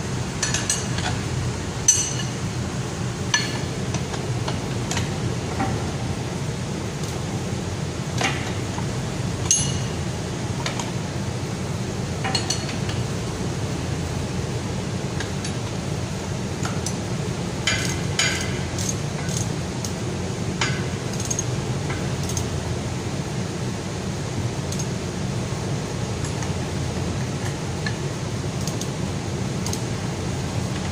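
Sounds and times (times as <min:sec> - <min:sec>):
steady low hum: 0:00.0 - 0:30.9.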